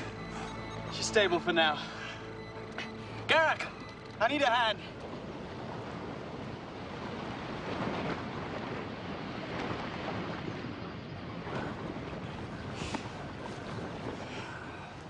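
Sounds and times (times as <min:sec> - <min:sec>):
rushing wind: 0:00.0 - 0:15.0.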